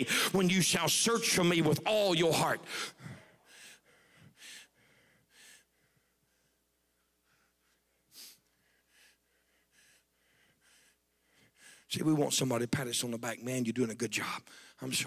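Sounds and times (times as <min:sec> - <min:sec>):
man breathing: 0:00.0 - 0:00.4, 0:02.6 - 0:11.9.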